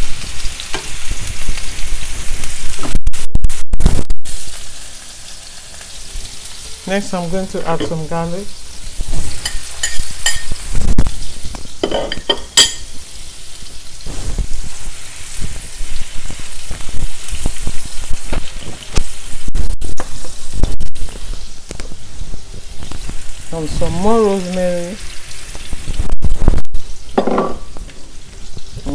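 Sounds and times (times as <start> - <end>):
meat sizzling in a frying pan: 0.0 - 28.9
metal spoon clinking on plate: 9.4 - 10.6, 11.8 - 12.9.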